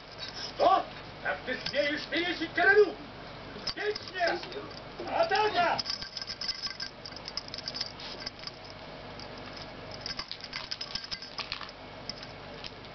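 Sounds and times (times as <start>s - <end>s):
wand toy rustling and clicking: 3.6s - 12.8s.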